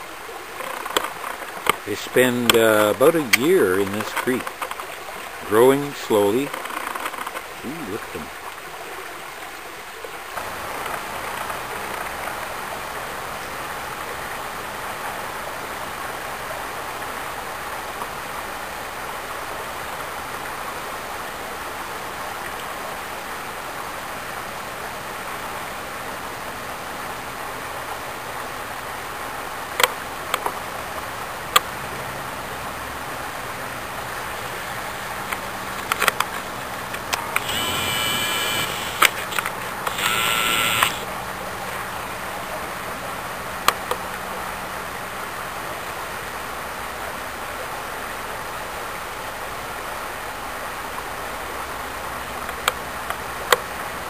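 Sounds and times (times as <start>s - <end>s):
creek water over rocks: 0.0s - 54.0s
sharp clicks: 36.9s - 41.1s.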